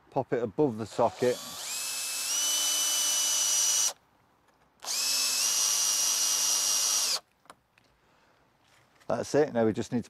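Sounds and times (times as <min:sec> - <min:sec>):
cordless drill motor whine: 0:01.0 - 0:04.0, 0:04.8 - 0:07.2.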